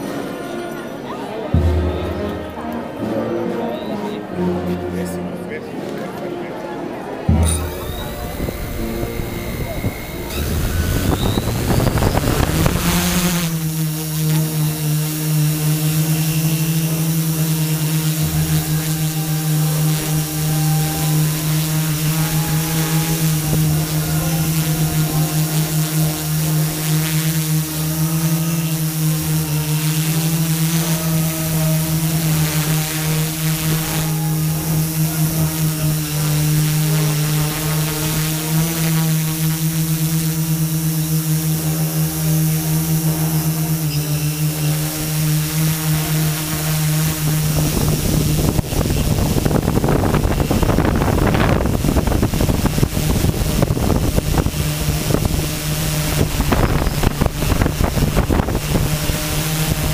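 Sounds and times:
drone propellers humming: 0:01.5 - 0:03.1, 0:07.3 - 0:59.9
wind buffeting microphone: 0:07.8 - 0:13.4, 0:47.3 - 0:59.9.

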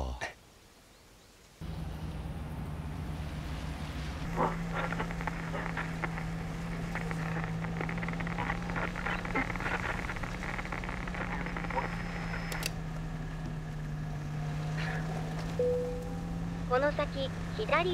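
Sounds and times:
car engine and road hum: 0:01.6 - 0:17.9
light clicks and crackles: 0:04.2 - 0:13.8.

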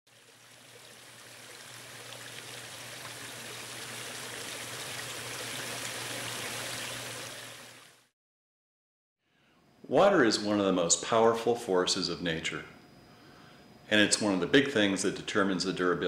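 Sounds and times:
stream splashing and bubbling: 0:00.1 - 0:08.1.

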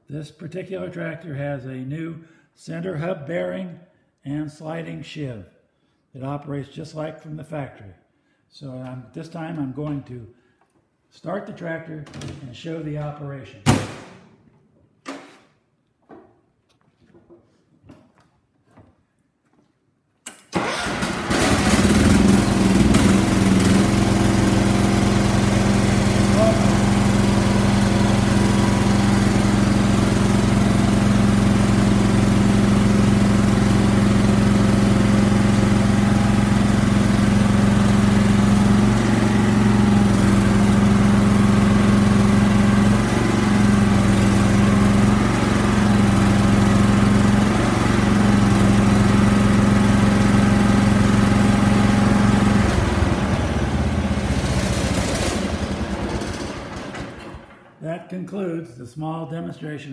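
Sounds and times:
lawn tractor engine running: 0:20.6 - 0:57.7.

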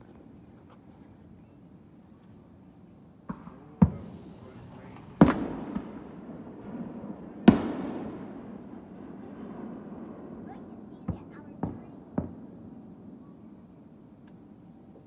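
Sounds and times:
fireworks bangs echoing: 0:03.2 - 0:12.9.

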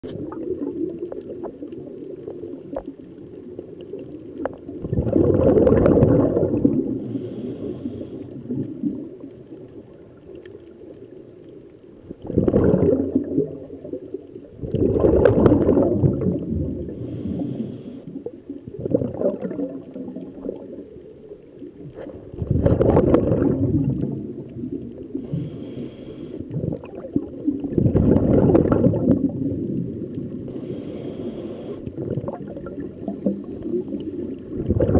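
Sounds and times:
exhaled bubbles rushing: 0:00.0 - 0:10.4, 0:12.0 - 0:21.2, 0:21.8 - 0:25.5, 0:26.5 - 0:30.7, 0:31.8 - 0:34.9
regulator inhale hiss: 0:06.8 - 0:08.6, 0:16.8 - 0:18.4, 0:24.9 - 0:26.7, 0:29.1 - 0:32.0.

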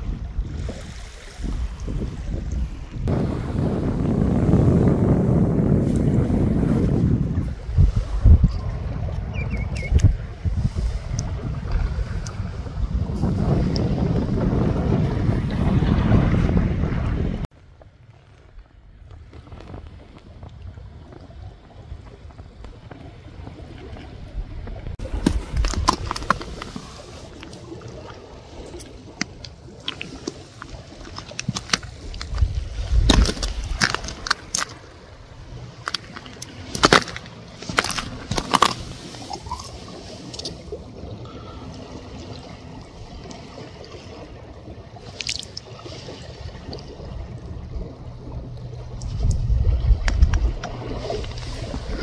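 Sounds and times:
mud squelching: 0:25.0 - 0:44.2, 0:44.9 - 0:52.0.

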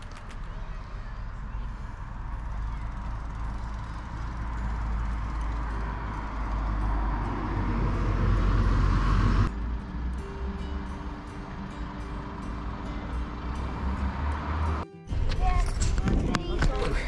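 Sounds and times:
road vehicle approaching: 0:00.0 - 0:17.0
wind rumbling on microphone: 0:15.2 - 0:17.0.

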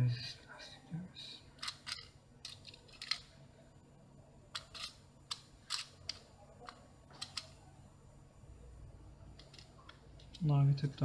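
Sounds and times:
small parts clicking and rattling: 0:01.6 - 0:03.4, 0:04.5 - 0:07.6, 0:09.3 - 0:10.5.

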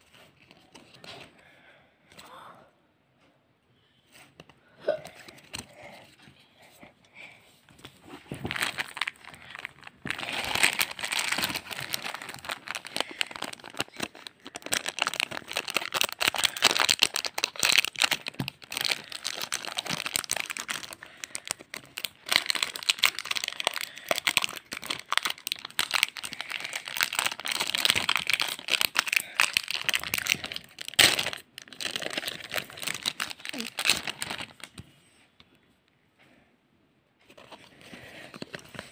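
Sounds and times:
foil wrappers crinkling: 0:08.4 - 0:34.7.

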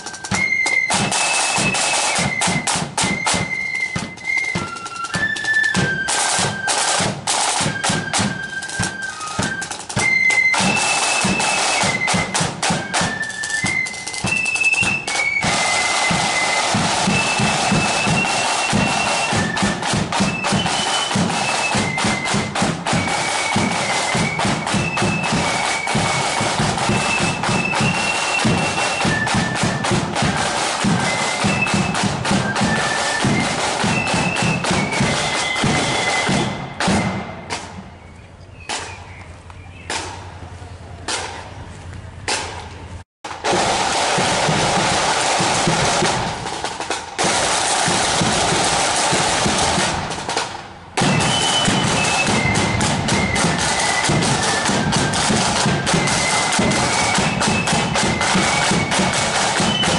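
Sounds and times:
snare drum rolls: 0:00.0 - 0:38.0, 0:38.7 - 0:39.1, 0:39.9 - 0:40.4, 0:41.1 - 0:41.5, 0:42.3 - 0:59.9
flutes playing high melody: 0:00.0 - 0:38.4, 0:51.0 - 0:59.9.

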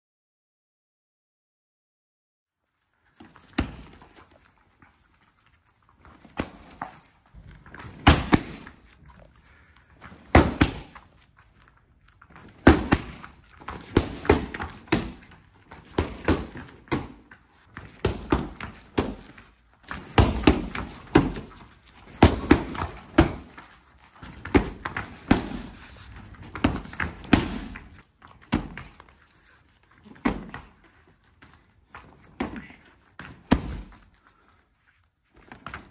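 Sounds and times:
kicks slapping a kick paddle: 0:07.9 - 0:08.8, 0:10.2 - 0:11.0, 0:12.6 - 0:23.6, 0:24.3 - 0:25.8, 0:26.5 - 0:28.9, 0:32.4 - 0:34.0.

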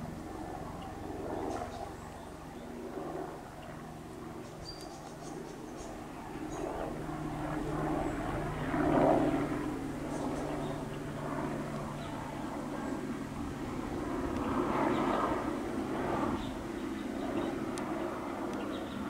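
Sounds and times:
helicopter flying overhead: 0:00.0 - 0:19.0.

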